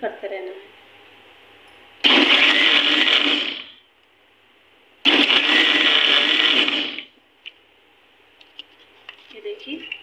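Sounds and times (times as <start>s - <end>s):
electric mixer grinder blending: 2.0s - 3.7s, 5.1s - 7.1s.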